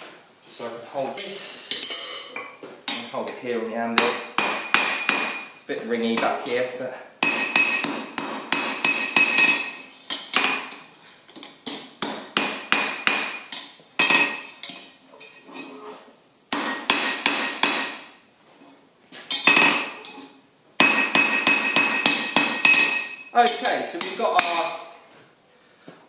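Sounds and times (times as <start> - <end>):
hammer ringing on anvil: 20.8 - 24.6.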